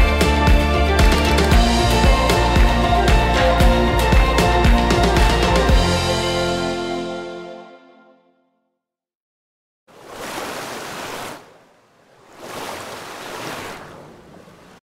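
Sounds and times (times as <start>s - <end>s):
ocean waves washing in: 9.9s - 14.8s.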